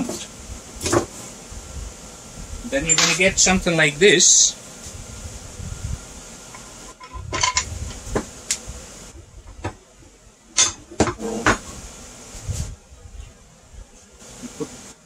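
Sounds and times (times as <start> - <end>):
metal parts clinking and knocking: 2.9 - 3.2.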